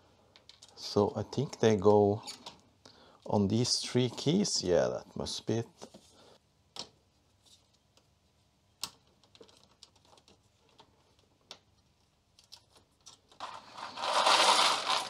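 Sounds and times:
small clicks and taps of plastic: 8.8 - 13.4.

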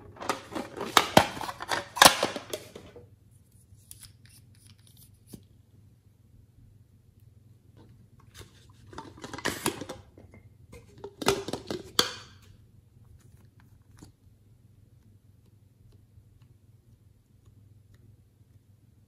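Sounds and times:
plastic objects rustling and knocking: 0.0 - 3.1, 7.8 - 12.5.

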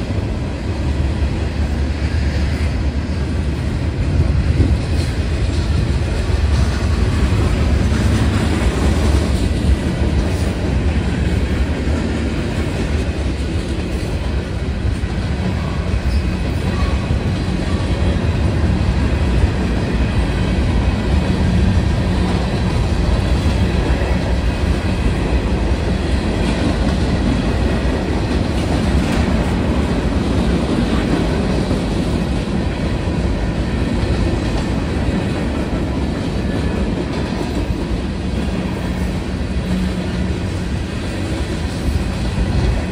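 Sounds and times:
freight train cars rolling past: 0.0 - 42.9.

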